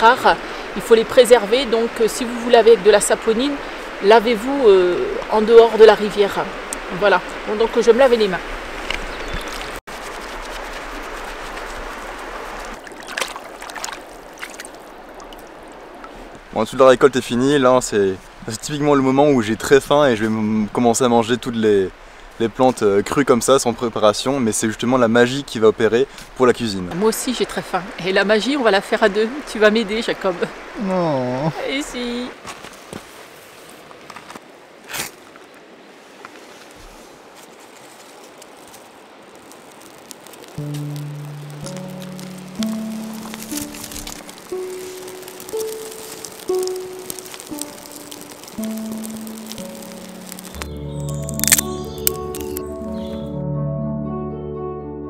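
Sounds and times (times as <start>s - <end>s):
water splashes and drips: 0.0s - 16.9s, 37.8s - 52.7s
river flowing over stones: 0.0s - 19.2s, 37.1s - 52.7s
small clicks: 43.2s - 52.7s.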